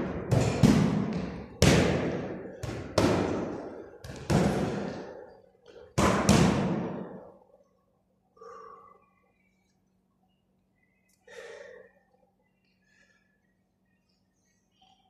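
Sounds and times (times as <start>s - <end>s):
punches thudding on punching bag: 0.0s - 5.1s, 6.0s - 7.2s.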